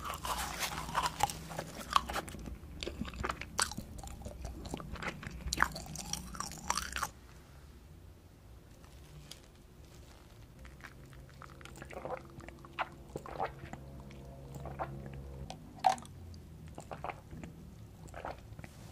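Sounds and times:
sipping through a straw: 0:00.0 - 0:02.4
faint low hum: 0:00.0 - 0:18.9.

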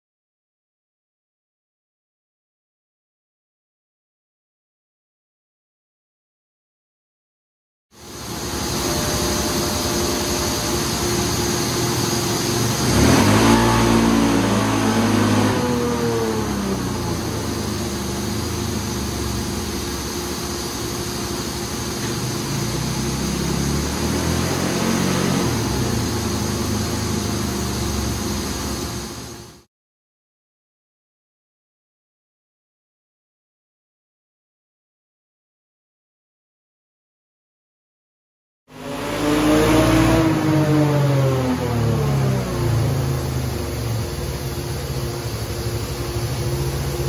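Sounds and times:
engine revving under load: 0:08.0 - 0:29.7, 0:38.7 - 0:47.0.

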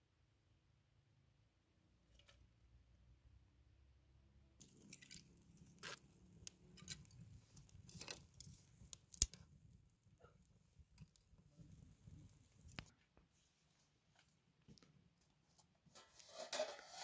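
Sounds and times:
twigs and straw crackling: 0:04.6 - 0:09.6.

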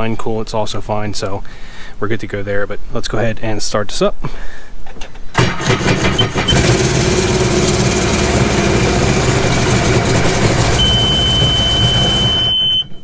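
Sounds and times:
engine idling rough with misfire: 0:05.4 - 0:12.6
electric starter cranking: 0:05.4 - 0:12.8
short beeps: 0:10.4 - 0:13.0.

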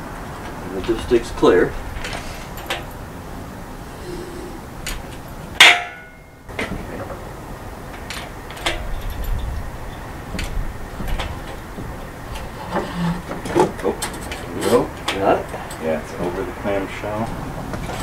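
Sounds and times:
loud metal clank: 0:05.6 - 0:06.7
metallic clicks and knocks: 0:07.9 - 0:15.8.

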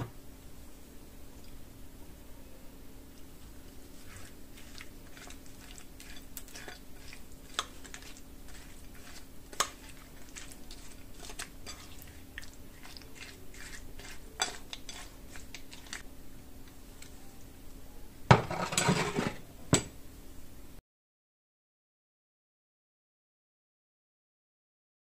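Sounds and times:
person chewing: 0:03.9 - 0:16.0.

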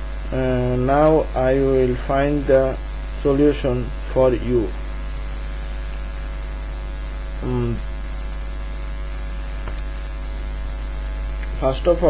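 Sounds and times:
electrical mains hum: 0:00.0 - 0:12.0
short voiced sound: 0:07.4 - 0:07.8.

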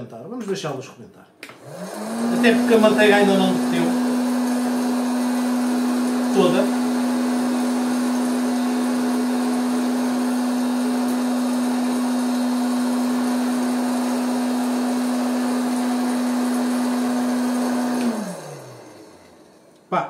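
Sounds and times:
popcorn maker fan humming: 0:01.6 - 0:20.0.

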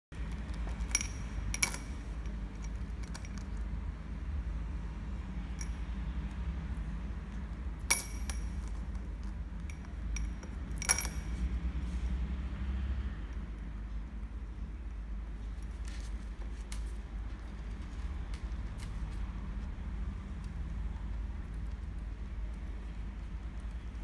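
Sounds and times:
steady low hum: 0:00.1 - 0:24.0
coins clinking against glass bowl: 0:00.8 - 0:03.3, 0:09.7 - 0:11.4.

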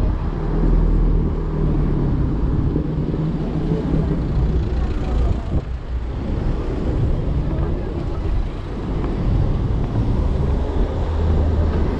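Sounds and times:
passing cars: 0:00.0 - 0:11.9
scooter tyres rumbling on street: 0:00.0 - 0:11.9.

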